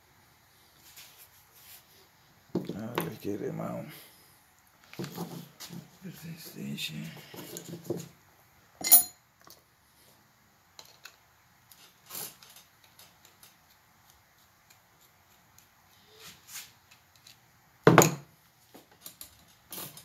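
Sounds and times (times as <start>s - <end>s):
metal engine parts clinking: 8.8s - 9.2s.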